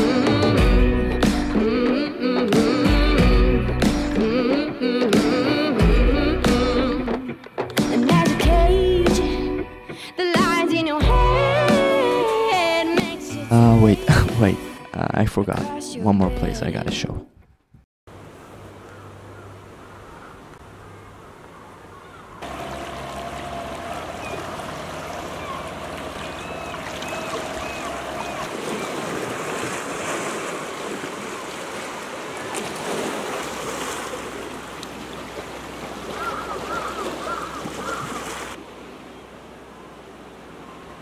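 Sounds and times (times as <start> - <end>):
sea water lapping against rocks: 22.4 - 38.9.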